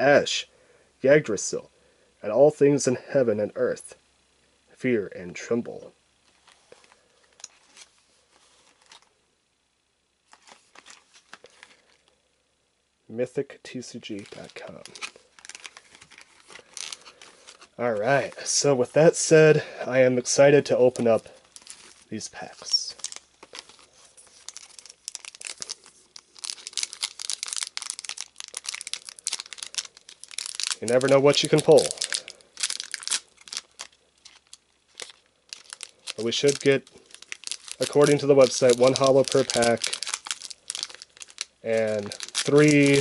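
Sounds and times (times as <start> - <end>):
foil pack crinkling and tearing: 10.3 - 12.0, 14.1 - 18.6, 21.0 - 43.0.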